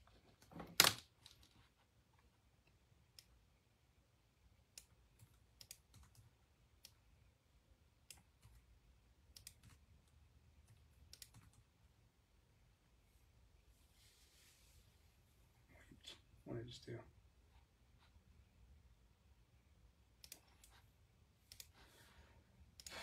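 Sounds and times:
keyboard typing clicks: 4.7 - 7.0, 9.3 - 11.6, 20.2 - 20.8.

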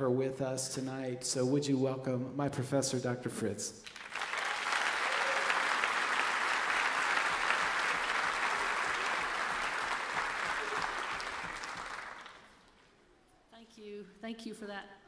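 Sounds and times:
large audience applauding: 3.8 - 12.7.

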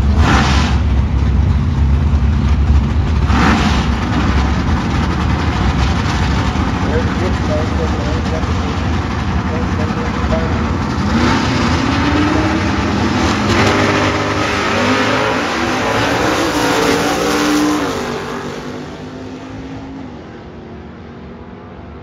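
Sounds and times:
drag racing car engine accelerating: 0.0 - 22.0.

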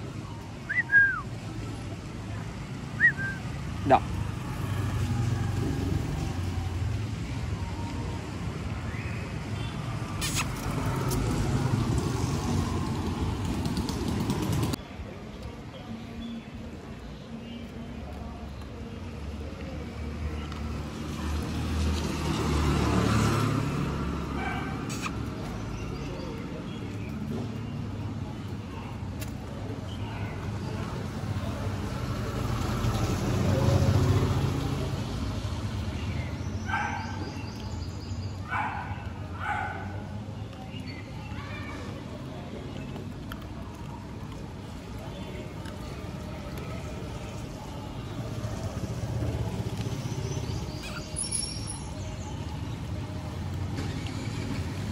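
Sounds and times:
rumble of passing vehicles: 0.0 - 54.9
vehicle rumbling past: 8.2 - 14.8, 20.6 - 26.6, 31.1 - 36.7.

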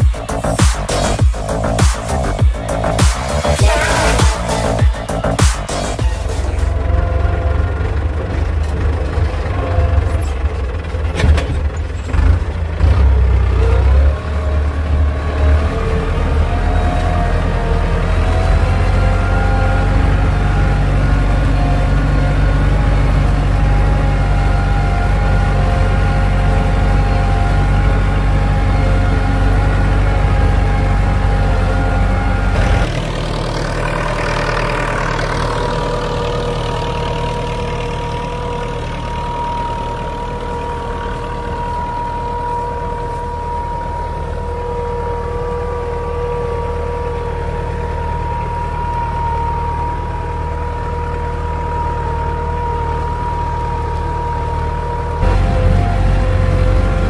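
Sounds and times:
tractor diesel engine running: 0.0 - 57.0
thin whine: 29.1 - 57.0.

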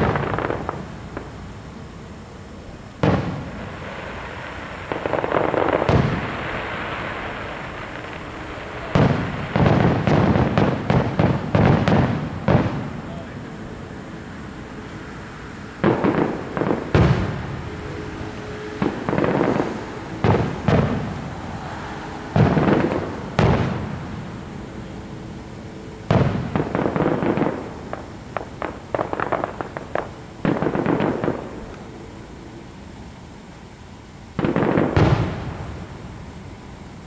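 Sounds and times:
fireworks booming: 0.0 - 37.0
fireworks crackling pops: 0.0 - 37.0.

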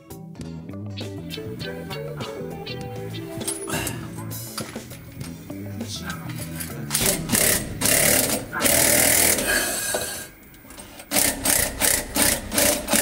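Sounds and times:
cordless impact driver running: 7.0 - 10.2, 11.1 - 13.0.

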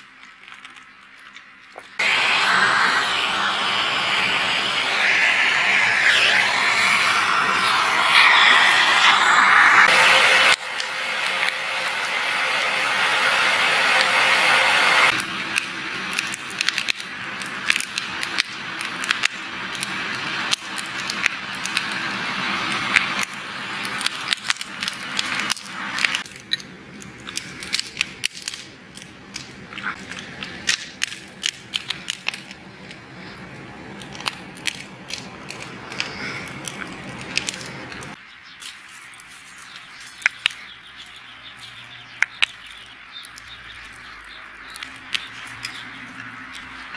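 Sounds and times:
wood fire crackling and popping: 0.0 - 41.3, 42.1 - 46.9
blower hissing into fire: 1.9 - 26.4, 27.0 - 38.2.

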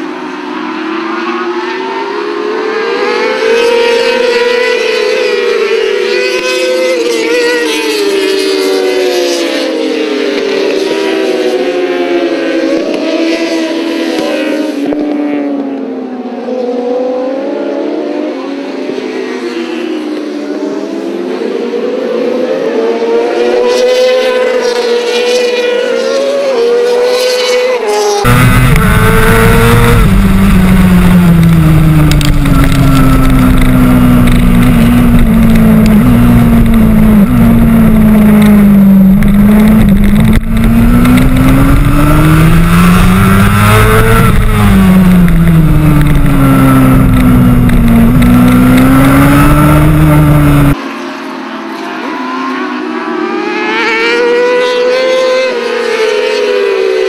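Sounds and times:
loud onboard motorcycle engine: 0.0 - 57.0
racing motorcycle engines passing: 0.0 - 57.0
heavy rush of wind: 28.2 - 50.8.

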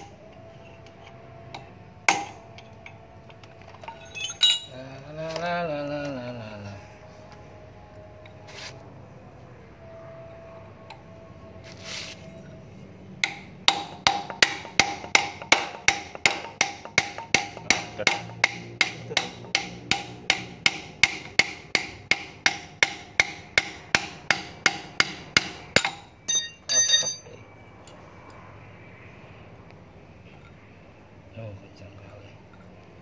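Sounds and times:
hammer striking steel: 2.1 - 2.4, 13.2 - 27.4.

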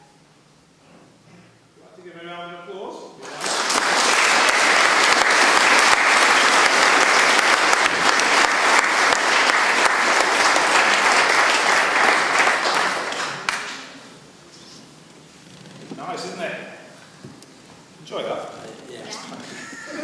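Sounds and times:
crowd applauding: 3.2 - 14.0.

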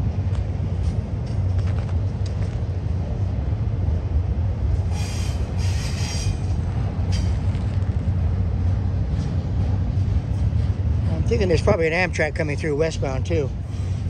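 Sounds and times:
diesel locomotives rumbling: 0.0 - 14.0
steel wheels squealing on rail: 4.8 - 7.5, 13.6 - 14.0.

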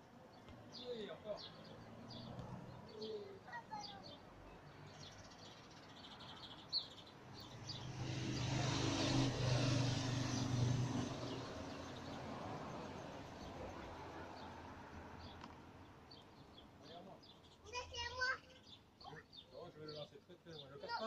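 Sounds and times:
small birds chirping: 0.0 - 21.0
motor vehicle passing: 7.3 - 15.9.

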